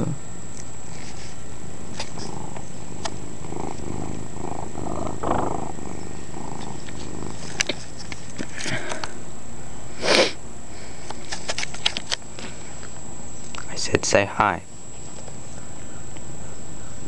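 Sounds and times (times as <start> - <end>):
cat purring: 1.8 - 8.4.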